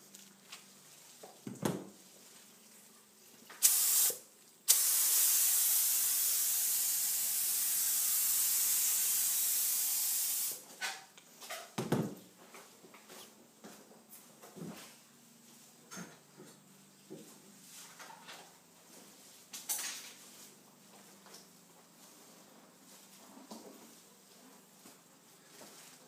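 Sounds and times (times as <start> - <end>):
spray hissing: 3.6 - 10.6.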